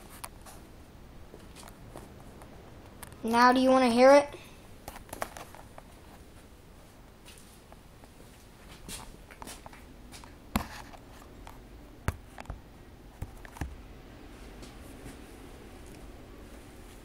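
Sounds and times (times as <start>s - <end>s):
phone handling rustles: 4.9s - 5.9s.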